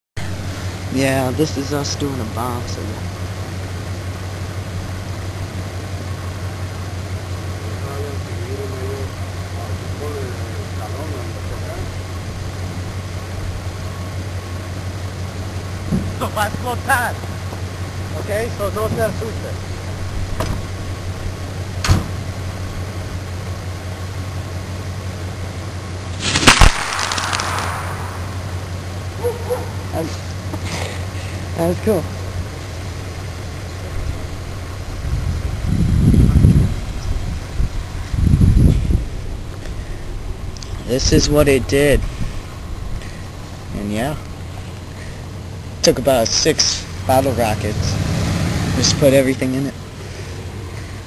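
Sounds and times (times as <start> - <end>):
steady low hum: 0.2 - 51.0
explosive bang: 26.2 - 28.6
hissing tail: 26.2 - 29.2.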